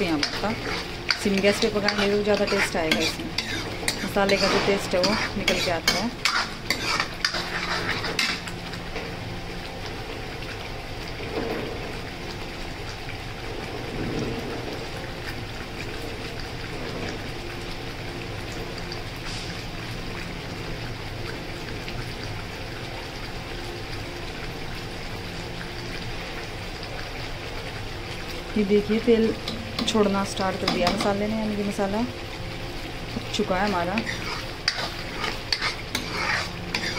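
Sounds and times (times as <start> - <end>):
ladle scraping pan: 0.0 - 8.8, 33.9 - 36.9.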